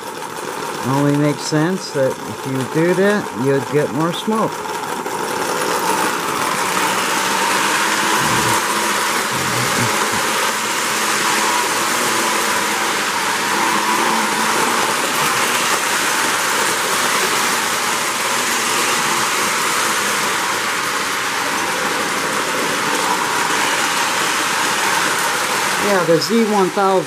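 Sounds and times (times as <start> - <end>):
model locomotive motor: 0.0 - 27.0
model train wheels rolling on rails: 0.0 - 27.0.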